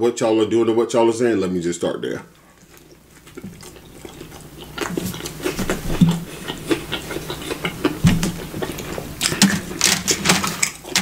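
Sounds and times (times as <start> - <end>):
person biting and chewing: 2.6 - 11.0.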